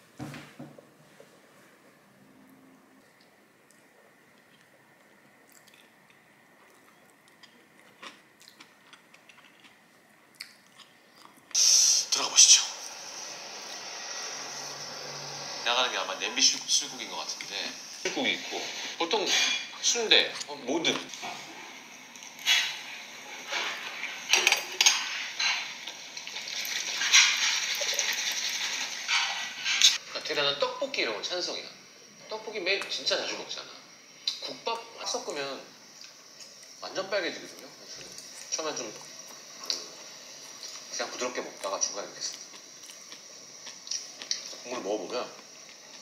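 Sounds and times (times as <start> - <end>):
faint high hum: 0.0 - 46.0
soft chewing: 3.0 - 11.6, 37.5 - 40.9, 41.6 - 44.6.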